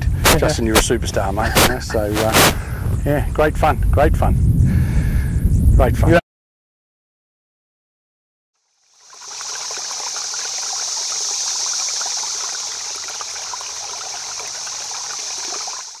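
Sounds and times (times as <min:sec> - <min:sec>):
running water trickling: 0:08.6 - 0:16.0.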